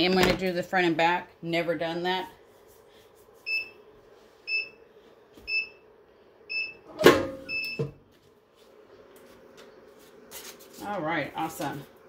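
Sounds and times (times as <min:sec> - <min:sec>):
heat press timer beeping: 0:03.5 - 0:03.8, 0:04.5 - 0:04.8, 0:05.5 - 0:05.8, 0:06.5 - 0:08.0.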